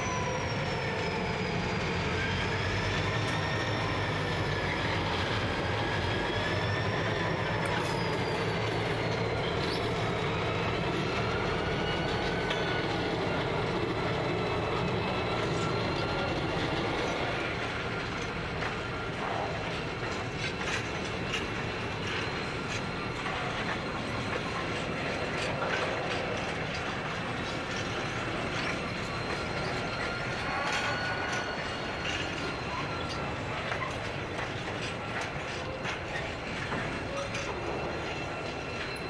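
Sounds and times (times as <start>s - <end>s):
high-pitched wheel squeal: 0.0s - 18.3s, 27.2s - 39.0s
freight train rumbling: 0.0s - 39.0s
wheels clicking over rail joints: 0.3s - 39.0s.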